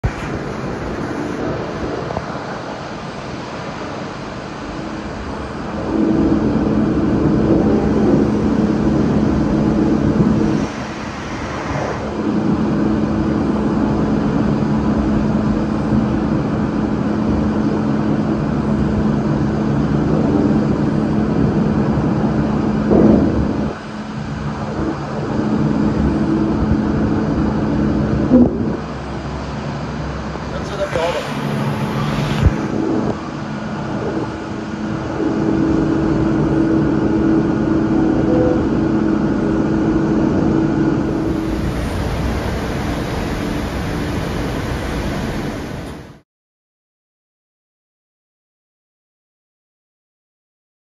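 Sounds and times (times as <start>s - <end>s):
machine tool humming: 40.9s - 46.1s.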